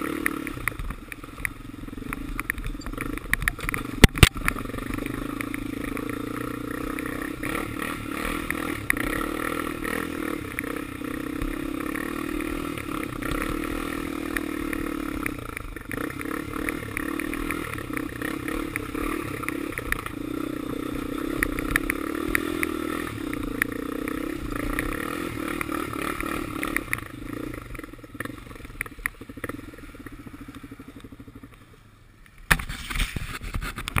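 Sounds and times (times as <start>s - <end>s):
quad bike engine running: 0.0s - 34.0s.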